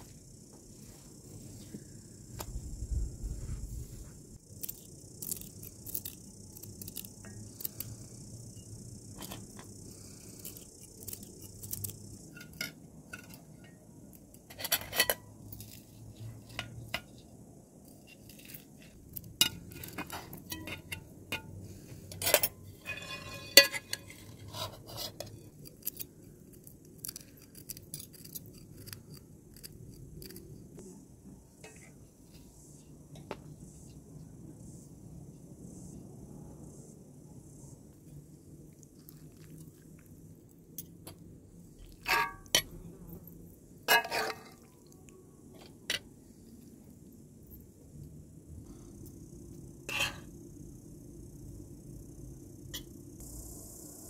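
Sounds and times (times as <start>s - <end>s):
cutlery clinking on metal plates: 19.4s - 25.4s, 42.1s - 42.7s, 43.9s - 44.6s.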